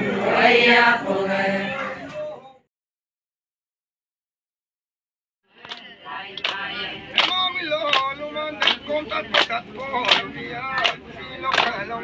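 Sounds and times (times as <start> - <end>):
group singing folk song: 0.0 - 2.4, 5.6 - 12.0
hand claps: 5.6 - 11.9.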